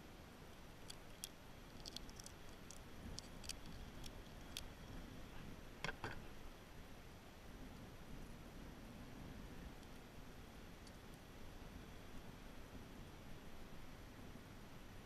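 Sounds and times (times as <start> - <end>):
faint clicks of handling fishing gear: 0.8 - 4.8.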